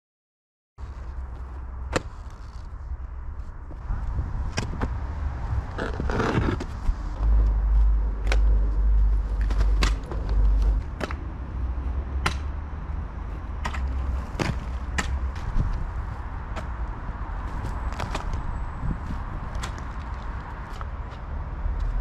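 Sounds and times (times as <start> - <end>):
shovel scraping and digging soil: 5.8 - 7.0.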